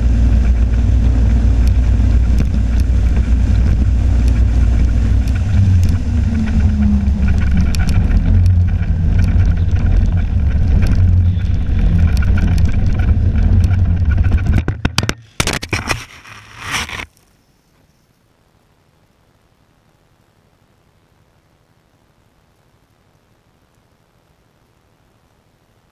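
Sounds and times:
snowmobile engine running: 0.0s - 17.0s.

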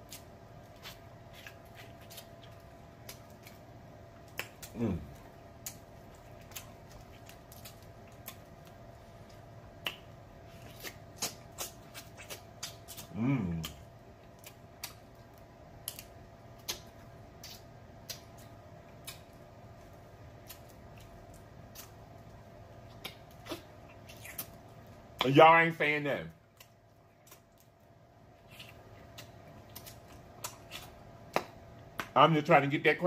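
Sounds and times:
person humming a moan: 4.7s - 5.2s, 13.1s - 13.7s.

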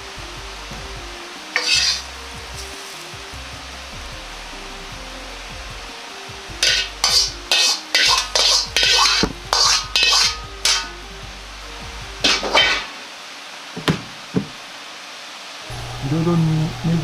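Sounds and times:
metal ladle scraping a wok: 1.6s - 3.0s, 6.6s - 11.0s, 12.2s - 13.0s.

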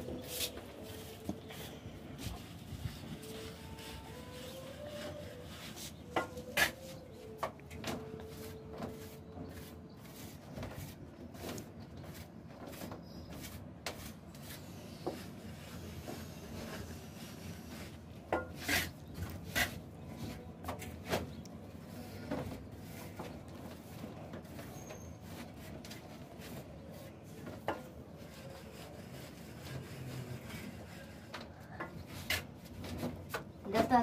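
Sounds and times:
trowel scraping cement: 18.4s - 19.8s.

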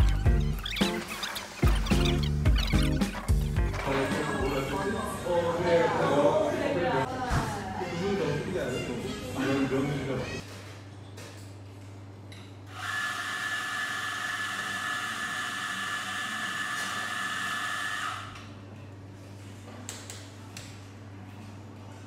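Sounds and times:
steam wand frothing milk: 12.8s - 18.3s.

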